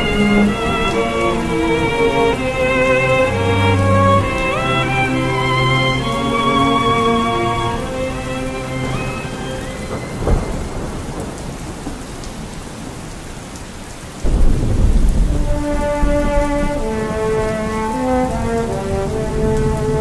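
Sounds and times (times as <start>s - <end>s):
rolling thunder rumble: 0.0s - 5.5s, 7.7s - 13.1s, 14.2s - 20.0s
heavy rain: 0.0s - 20.0s
thunder crack: 9.3s - 12.6s, 14.2s - 17.0s.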